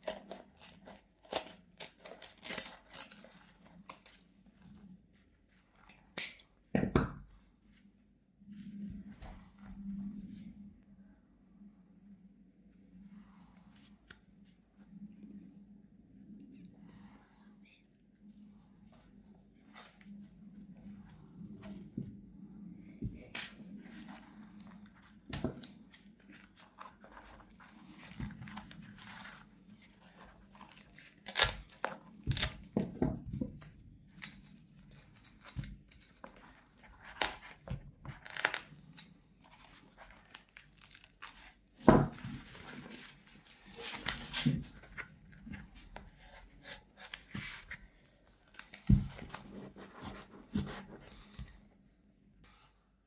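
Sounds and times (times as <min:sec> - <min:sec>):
knife tearing foam: 0:30.0 - 0:32.6.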